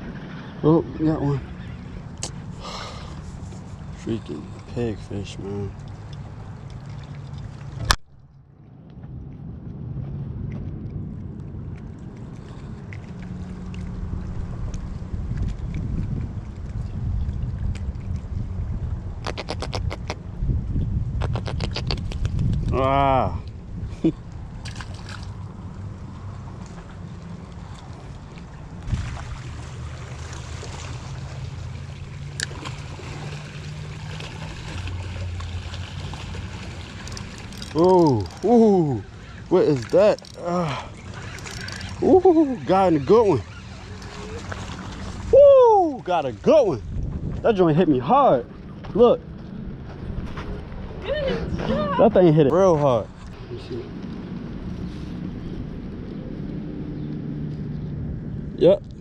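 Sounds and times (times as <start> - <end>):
wind buffeting microphone: 8.7 - 31.0, 36.3 - 59.0
waves lapping against rocks: 24.3 - 47.8.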